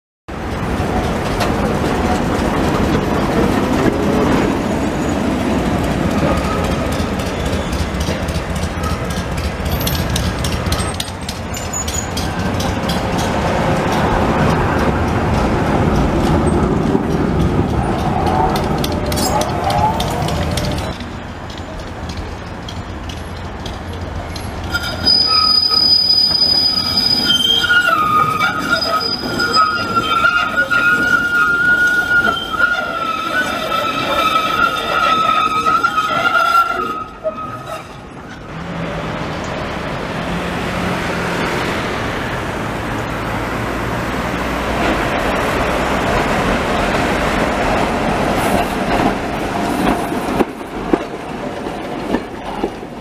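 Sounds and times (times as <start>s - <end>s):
tram wheels squealing: 0.3s - 39.0s
tram cars rattling: 0.3s - 53.0s
tram wheels rumbling on rails: 0.3s - 53.0s.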